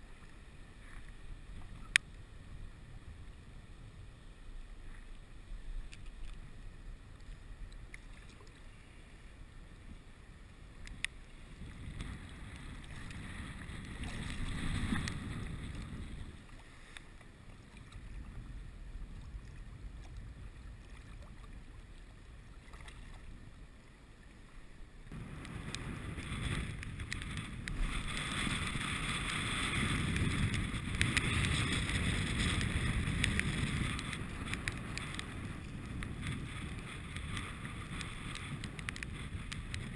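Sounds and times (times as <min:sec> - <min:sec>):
water sloshing and splashing: 0:07.1 - 0:08.7, 0:11.4 - 0:18.3, 0:19.1 - 0:23.6
wind buffeting microphone: 0:10.8 - 0:16.6, 0:17.6 - 0:23.2, 0:25.1 - 0:39.9.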